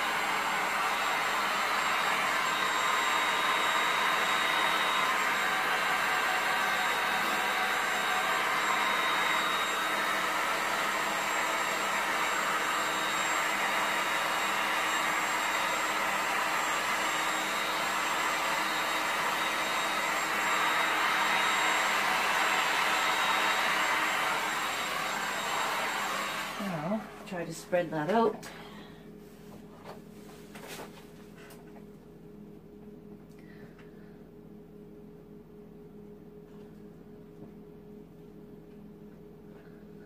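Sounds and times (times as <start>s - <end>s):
heat gun fan blowing: 0.0s - 28.8s.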